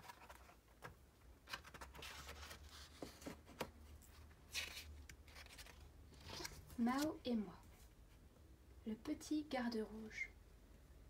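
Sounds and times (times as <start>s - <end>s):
paper pages rustling: 0.0s - 7.2s.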